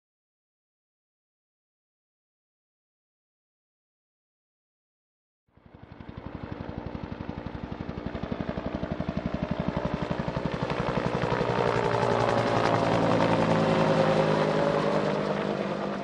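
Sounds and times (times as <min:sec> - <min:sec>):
helicopter flying by: 0:05.5 - 0:16.0.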